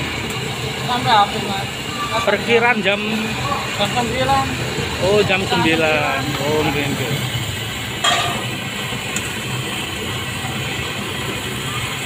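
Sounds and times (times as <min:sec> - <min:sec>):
oil sizzling: 0:00.0 - 0:12.0
metal skimmer clinking on wok: 0:08.0 - 0:08.5.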